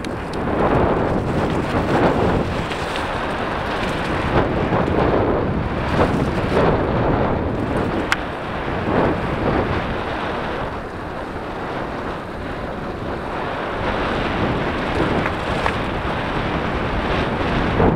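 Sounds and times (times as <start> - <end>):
wind buffeting microphone: 0.0 - 17.9.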